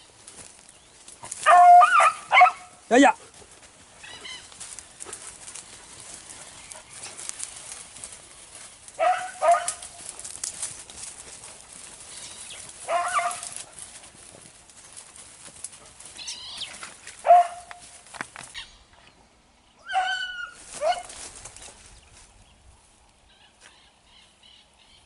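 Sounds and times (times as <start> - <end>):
brush rustling: 0.0 - 19.2, 20.2 - 24.3
dogs barking: 1.2 - 3.4, 4.0 - 10.4, 11.2 - 14.2, 17.2 - 17.9, 19.8 - 21.2.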